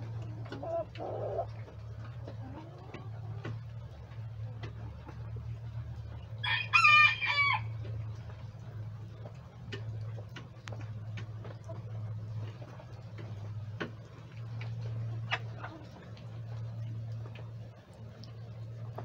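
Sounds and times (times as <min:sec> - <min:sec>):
low steady hum: 0:00.0 - 0:19.0
rooster crowing: 0:06.4 - 0:07.8.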